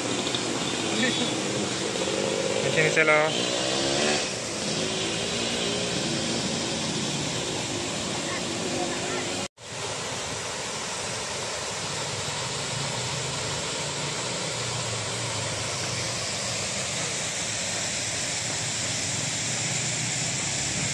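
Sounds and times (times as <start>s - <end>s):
waterfall splashing into pool: 0.0s - 20.9s.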